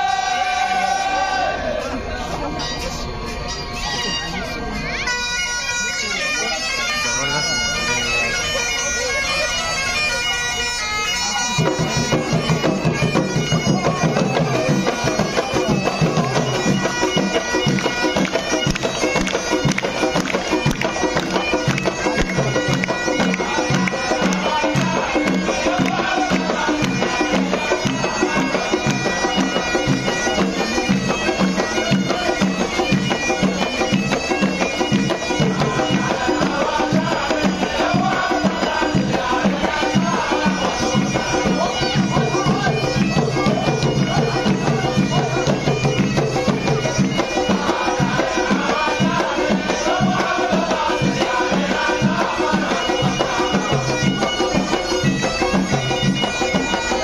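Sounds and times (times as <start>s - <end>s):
bagpipe droning melody: 0.0s - 57.0s
barrel drums beating: 11.6s - 57.0s.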